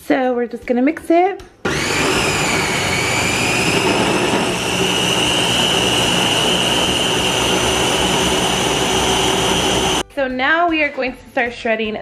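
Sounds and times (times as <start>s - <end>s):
chopper motor whine: 1.7s - 10.0s.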